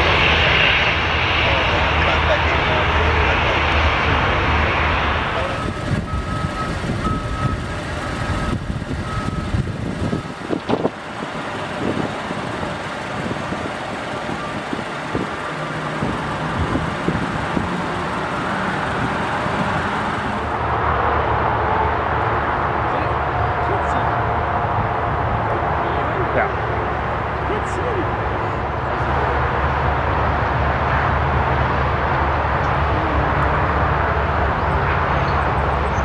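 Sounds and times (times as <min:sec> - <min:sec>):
airport and road traffic rumble: 0:00.0 - 0:36.0.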